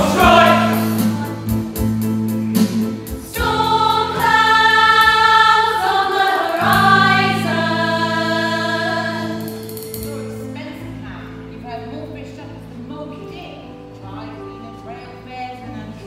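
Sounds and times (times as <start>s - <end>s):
ensemble singing in chorus: 0.0s - 1.6s, 3.2s - 9.8s
instrumental accompaniment: 0.0s - 11.0s.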